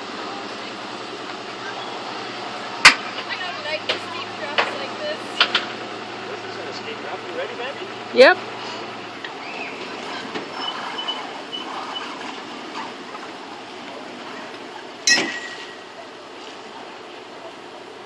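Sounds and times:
water noise: 0:00.0 - 0:18.0
sharp metallic clank: 0:15.0 - 0:15.9.

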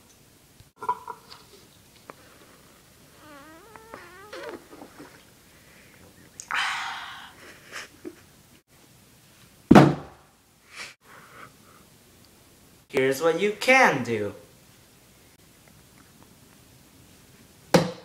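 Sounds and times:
loud thump: 0:09.7 - 0:10.2.

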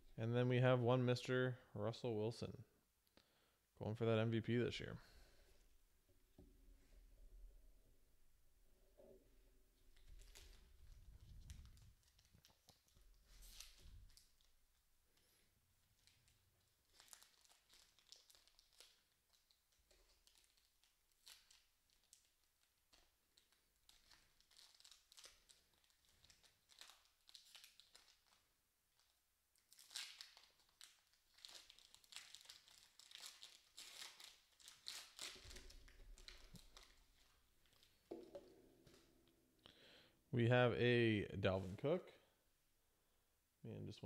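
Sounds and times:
foil card pack crinkling and tearing: 0:16.8 - 0:28.5, 0:29.6 - 0:38.0.

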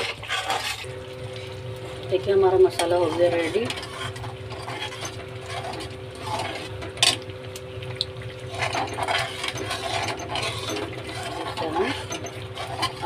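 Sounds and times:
metal spatula scraping a pan: 0:00.0 - 0:00.9, 0:02.7 - 0:07.2, 0:08.5 - 0:13.0
steady low hum: 0:00.0 - 0:13.0.

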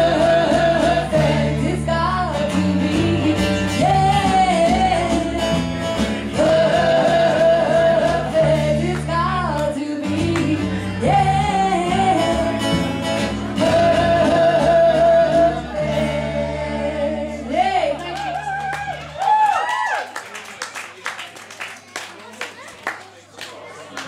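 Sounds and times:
double bass: 0:00.0 - 0:18.0
woman singing: 0:00.0 - 0:18.2
acoustic guitars: 0:00.0 - 0:19.2.

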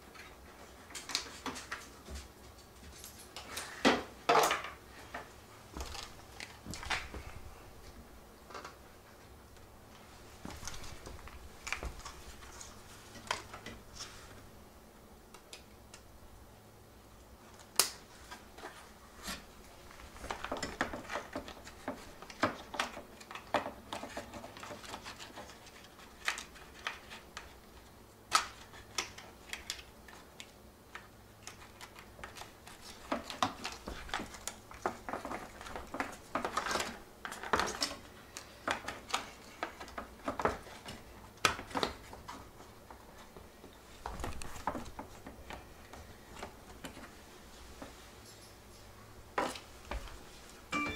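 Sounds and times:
plastic parts clicking and rattling: 0:20.0 - 0:27.6, 0:28.3 - 0:42.4.

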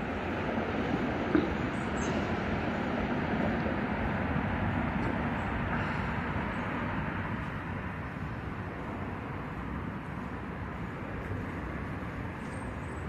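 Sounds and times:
vehicle passing rumble: 0:00.0 - 0:13.0.

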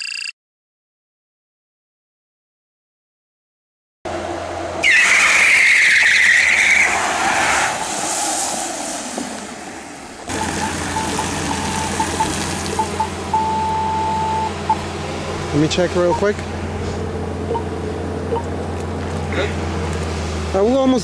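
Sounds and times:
tyres squealing: 0:04.8 - 0:07.8
broken mid-pitched tone: 0:10.3 - 0:14.9.

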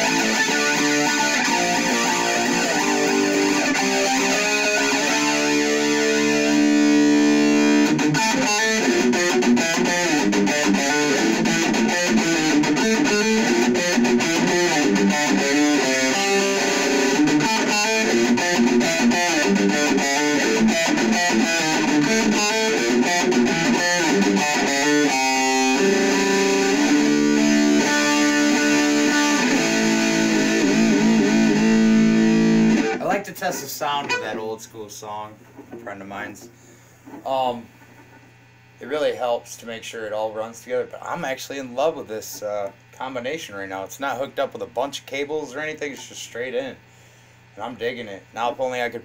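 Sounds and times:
distorted electric guitar: 0:00.0 - 0:34.9.

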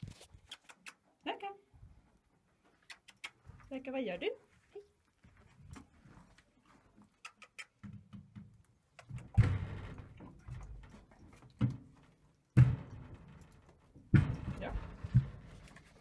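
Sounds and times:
hooves thudding on ramp: 0:07.8 - 0:16.0.

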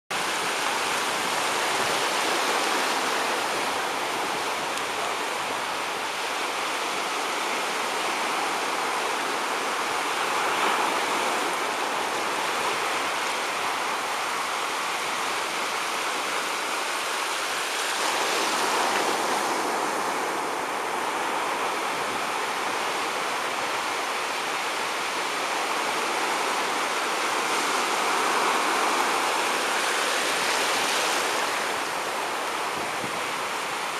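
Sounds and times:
small waves breaking on shore: 0:00.1 - 0:33.9.

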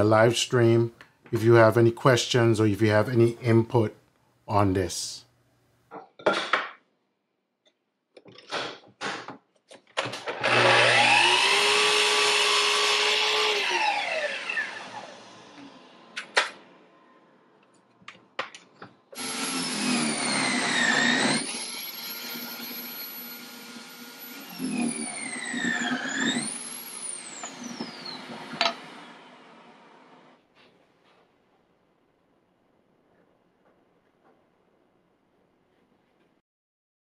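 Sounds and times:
small electric motor whirring: 0:10.4 - 0:15.2.

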